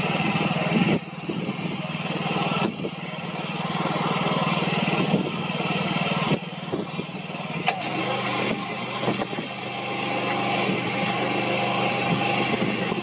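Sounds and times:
engine hum: 0.0s - 13.0s
wind buffeting microphone: 0.3s - 1.9s, 2.5s - 3.1s, 4.9s - 5.4s, 6.2s - 7.7s, 8.4s - 9.7s, 11.8s - 13.0s.

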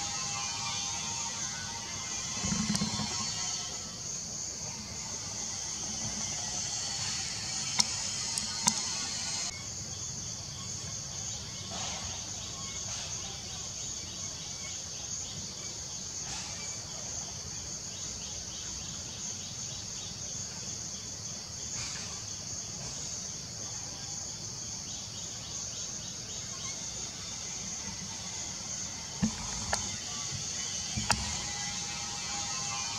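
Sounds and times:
insects chorus: 0.0s - 32.9s.

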